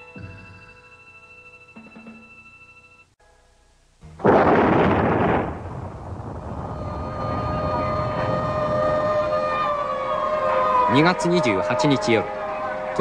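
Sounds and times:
bomb explosion: 4.2s - 9.8s
siren: 6.1s - 13.0s.

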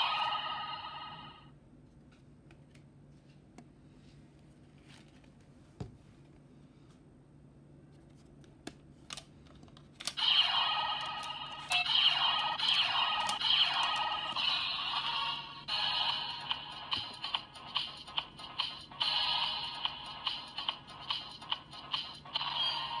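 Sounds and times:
electronic toy sound effect: 0.0s - 1.4s, 10.2s - 23.0s.

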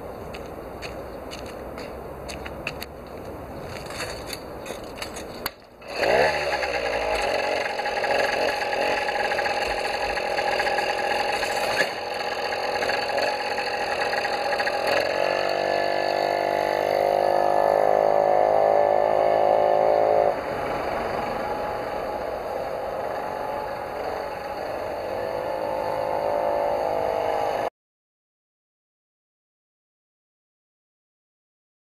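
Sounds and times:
small motorized bicycle engine: 5.8s - 17.3s, 20.4s - 27.0s.

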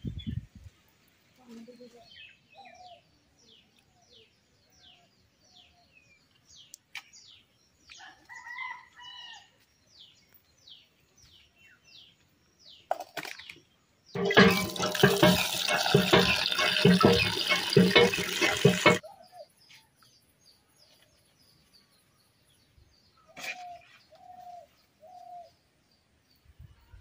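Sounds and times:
bird chirping: 1.4s - 8.0s
water pouring into metal bowl: 14.2s - 19.0s.

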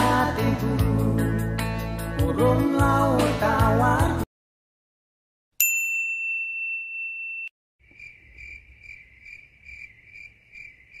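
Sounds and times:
high ringing tone: 5.6s - 7.6s.

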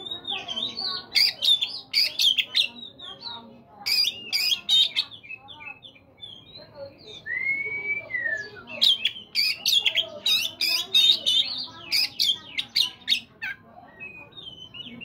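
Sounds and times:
bird singing whistles and sharp notes: 3.9s - 13.3s, 13.9s - 15.0s.

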